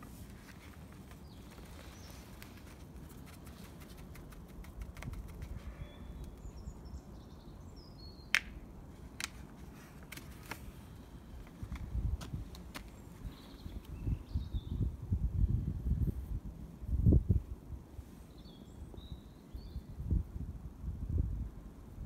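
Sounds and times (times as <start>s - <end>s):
paper seed packet clicks: 3.2s - 5.5s, 8.3s - 8.6s
bird chirps: 5.5s - 8.4s.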